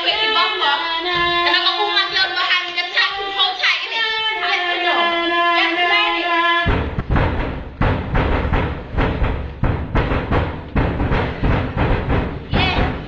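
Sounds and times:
loud noise with heavy thuds: 0:06.7 - 0:13.0.

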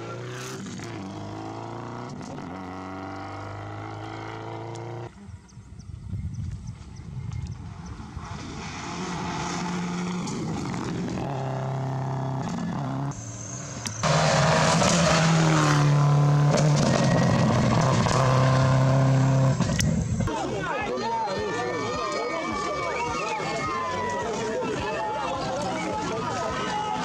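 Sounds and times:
rally car engine revving: 0:00.0 - 0:05.1, 0:08.2 - 0:20.3.

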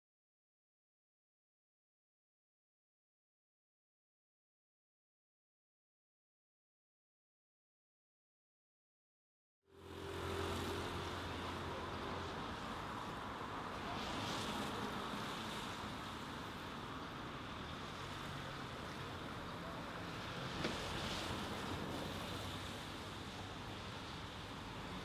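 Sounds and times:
low engine hum: 0:09.7 - 0:25.0
passing vehicles: 0:09.7 - 0:25.0.

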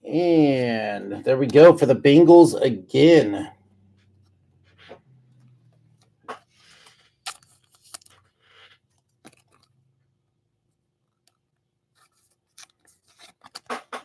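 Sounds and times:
cards rustling: 0:04.2 - 0:09.9, 0:11.1 - 0:14.0.

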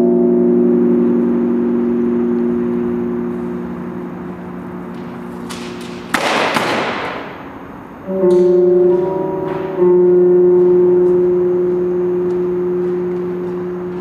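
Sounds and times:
chord of held tones: 0:00.0 - 0:05.5, 0:07.4 - 0:14.0
steady droning tones: 0:00.0 - 0:14.0
loud noisy crash: 0:04.9 - 0:07.7.

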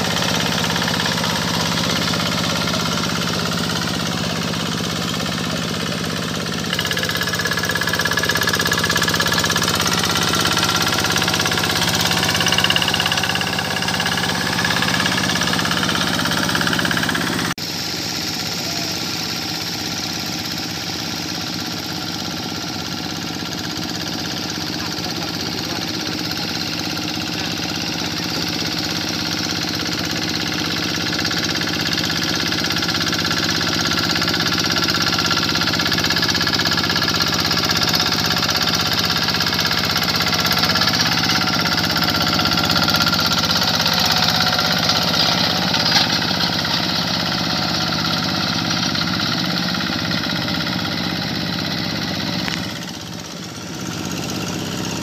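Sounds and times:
diesel engine running: 0:00.0 - 0:55.0.

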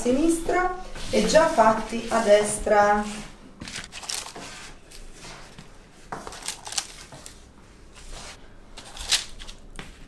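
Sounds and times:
paper rustling: 0:03.6 - 0:07.4, 0:08.0 - 0:10.0.

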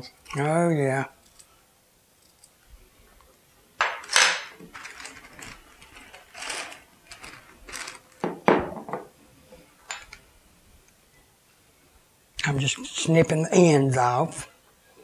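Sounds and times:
plastic bag crinkling: 0:04.6 - 0:08.3.

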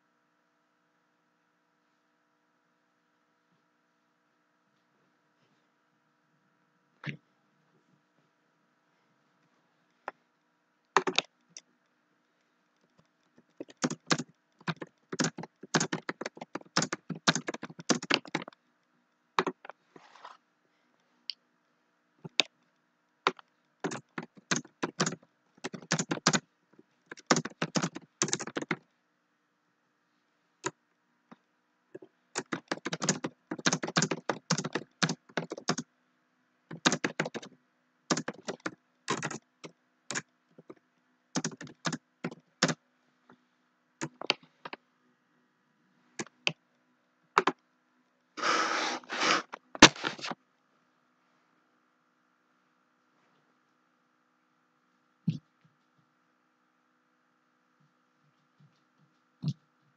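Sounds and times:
typing on a keyboard: 0:11.0 - 0:11.3, 0:13.5 - 0:18.6, 0:19.4 - 0:19.7, 0:23.3 - 0:26.4, 0:27.1 - 0:28.8, 0:32.0 - 0:35.9, 0:36.7 - 0:40.8, 0:41.4 - 0:42.8.

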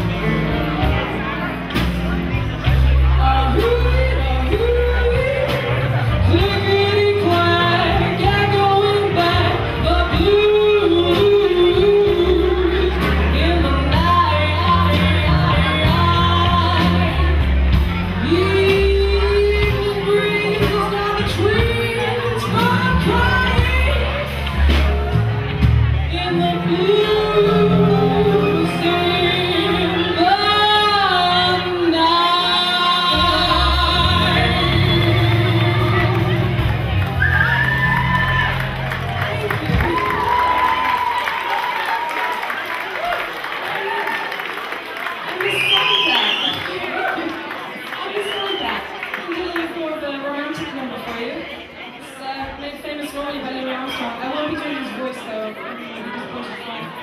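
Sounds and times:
band playing: 0:00.0 - 0:44.0
woman singing: 0:03.1 - 0:24.9, 0:25.9 - 0:38.6.

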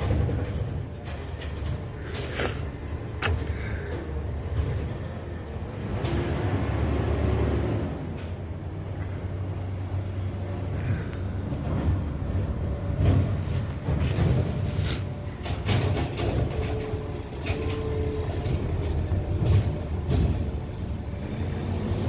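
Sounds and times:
truck engine rumbling: 0:00.0 - 0:22.0
short hiss: 0:14.6 - 0:15.1.

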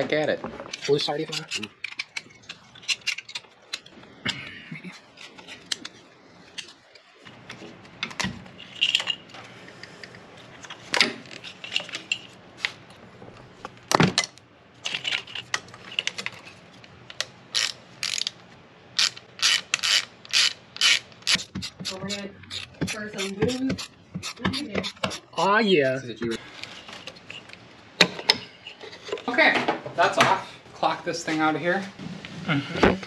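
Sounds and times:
ratchet wrench clicking: 0:17.5 - 0:18.3, 0:19.0 - 0:25.3.

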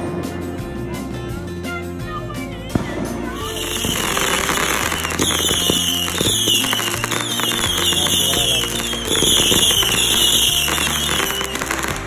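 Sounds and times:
background music: 0:00.0 - 0:12.0
fireworks crackling and popping: 0:02.4 - 0:12.0
falling whistling tones: 0:03.4 - 0:12.0.

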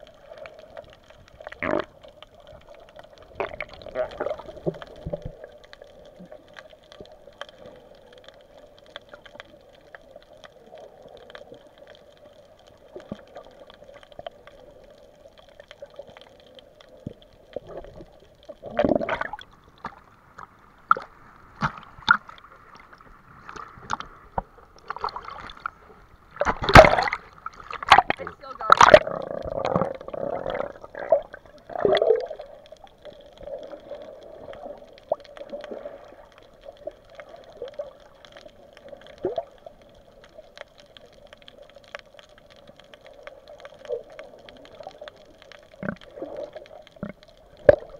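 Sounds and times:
muffled underwater hiss: 0:00.0 - 0:47.9
underwater clicks and crackles: 0:00.0 - 0:47.9
water sloshing and splashing: 0:12.8 - 0:47.9.

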